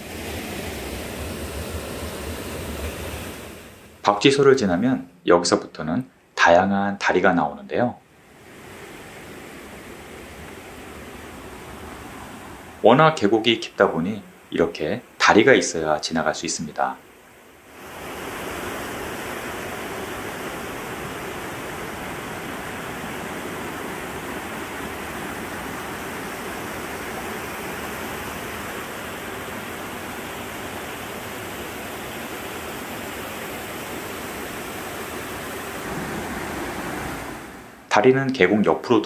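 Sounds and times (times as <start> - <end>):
stream rushing over rocks: 8.2 - 13.6, 17.6 - 37.9.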